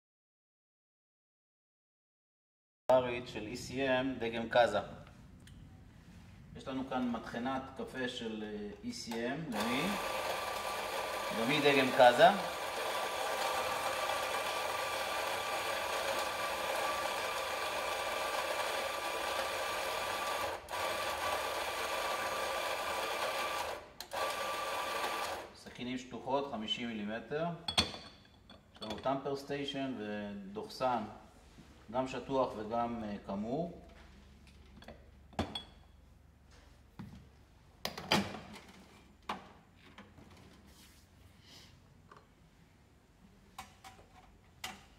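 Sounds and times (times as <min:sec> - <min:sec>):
coffee grinder whirring: 0:09.5 - 0:25.5.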